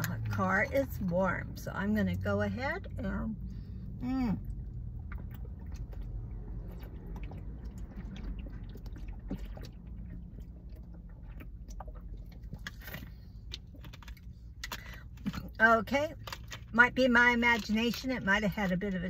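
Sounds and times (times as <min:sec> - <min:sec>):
low steady hum: 0:00.0 - 0:19.0
person gulping water: 0:04.4 - 0:14.0.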